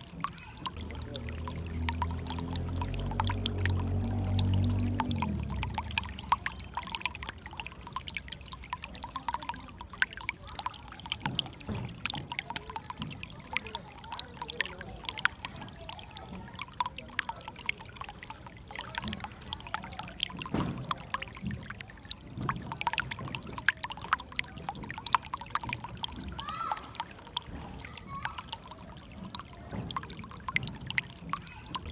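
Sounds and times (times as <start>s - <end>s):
low gurgle: 0.0s - 31.9s
water trickling over stones: 0.0s - 31.9s.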